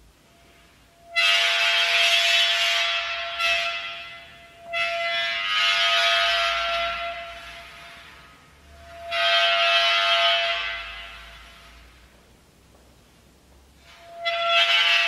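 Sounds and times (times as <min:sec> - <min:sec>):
metal stick screeching in sand: 0:13.8 - 0:15.0.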